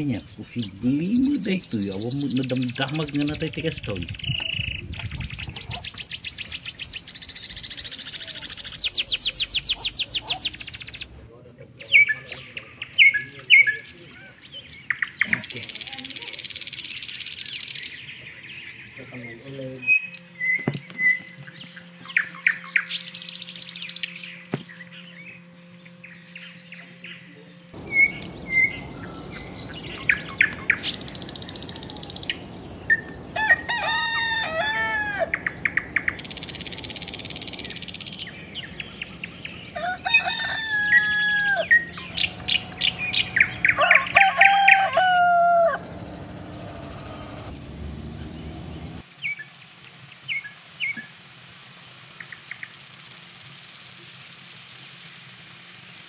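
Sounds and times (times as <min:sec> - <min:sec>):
small birds chirping: 0:00.0 - 0:55.5
chickens calling: 0:08.6 - 0:10.7, 0:27.7 - 0:49.0
food sizzling in oil: 0:49.0 - 0:56.0.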